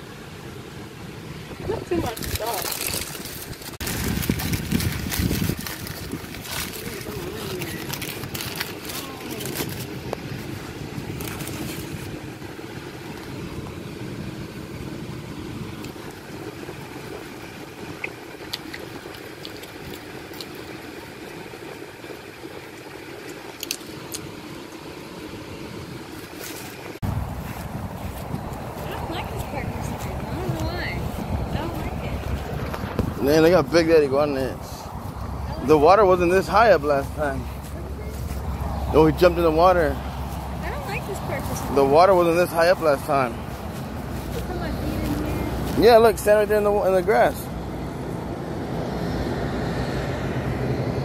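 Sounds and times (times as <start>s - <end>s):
car cabin hum: 27.0s - 42.2s.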